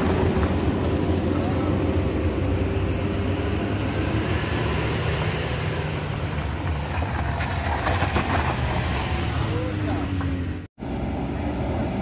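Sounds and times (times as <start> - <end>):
diesel truck engines droning: 0.0 - 12.0
car tyres crackling over gravel: 6.4 - 10.4.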